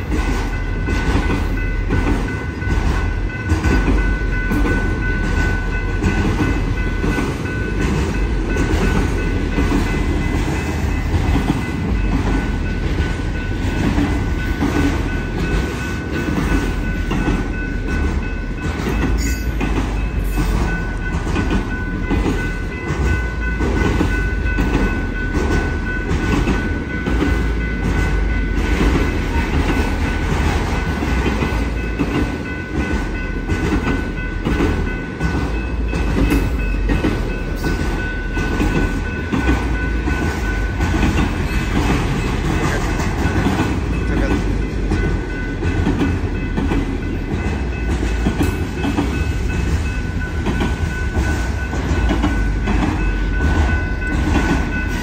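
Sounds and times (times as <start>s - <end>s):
high ringing tone: 0.0s - 31.0s
train rumble: 0.0s - 55.0s
wheels clickety-clack on rails: 0.0s - 55.0s.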